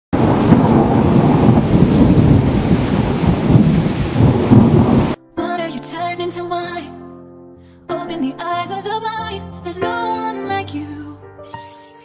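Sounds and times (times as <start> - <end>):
thunder rumbling: 0.1 - 5.2
heavy rain: 0.2 - 5.2.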